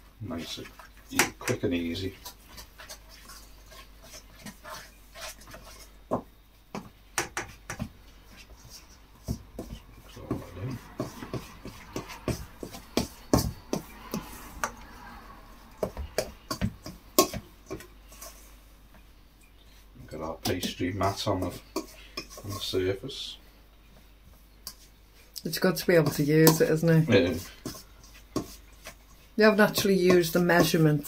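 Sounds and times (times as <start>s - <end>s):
cutlery clinking on metal bowl: 16.2s - 17.9s, 26.0s - 26.8s.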